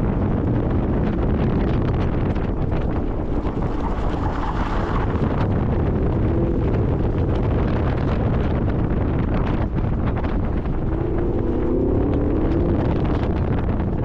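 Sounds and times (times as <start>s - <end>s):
wind buffeting microphone: 0.0s - 14.0s
faint car engine: 9.6s - 14.0s.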